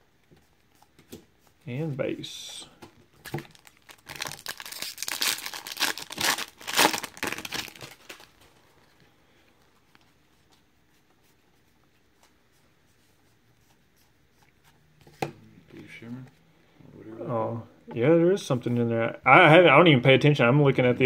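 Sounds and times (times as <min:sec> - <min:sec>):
foil wrapper tearing and crinkling: 0:03.3 - 0:08.4.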